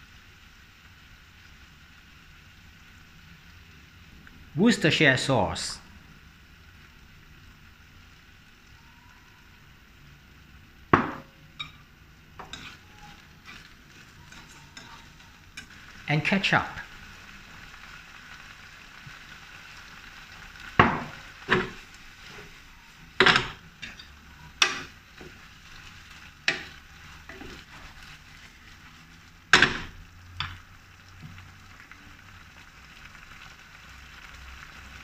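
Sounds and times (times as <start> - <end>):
shrimp sizzling in a pan: 0.0 - 35.0
spatula knocking and scraping pan: 12.4 - 13.7, 20.8 - 22.6, 23.2 - 25.4, 26.4 - 28.0.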